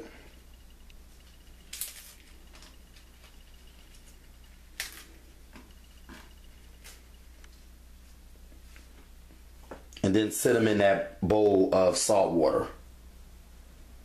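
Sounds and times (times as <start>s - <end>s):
cabbage leaves tearing: 4.8s - 5.1s.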